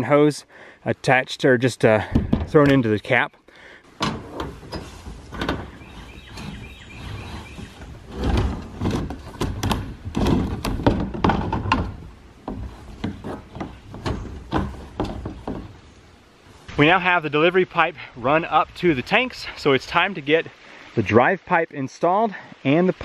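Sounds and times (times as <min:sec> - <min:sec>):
hard plastic knocks and scrapes: 0:02.1 - 0:02.8, 0:04.0 - 0:15.8
hose rubbing against plastic tank: 0:04.2 - 0:10.8.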